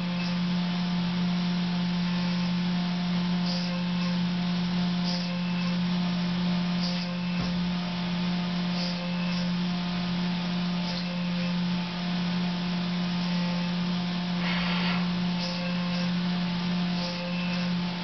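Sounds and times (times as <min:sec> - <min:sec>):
machine spindle hum: 0:00.0 - 0:18.0
brief higher-pitched hiss: 0:14.4 - 0:15.0
coolant spray hiss: 0:14.4 - 0:15.0.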